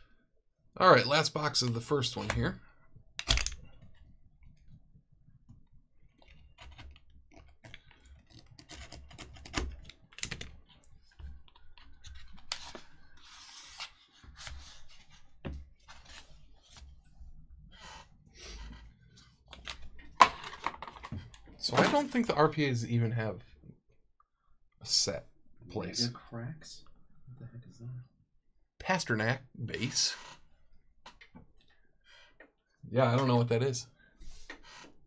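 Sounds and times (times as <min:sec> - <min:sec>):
cardboard and cards rustling: 0:06.2 - 0:17.1.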